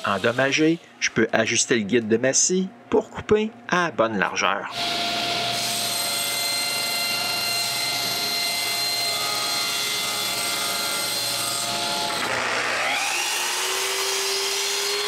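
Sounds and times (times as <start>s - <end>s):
power tool motor whining: 4.7s - 15.0s
table saw ripping panel: 4.8s - 15.0s.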